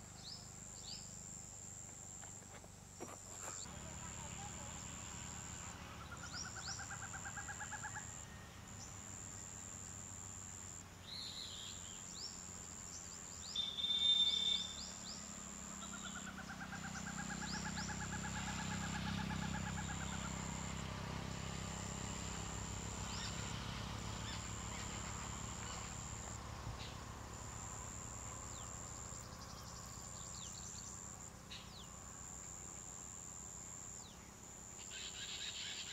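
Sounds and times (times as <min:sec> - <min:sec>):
forest birds calling: 0:00.0 - 0:01.2, 0:05.9 - 0:09.7, 0:11.0 - 0:20.7, 0:23.0 - 0:33.0, 0:33.9 - 0:35.9
high insect buzz: 0:00.0 - 0:35.9.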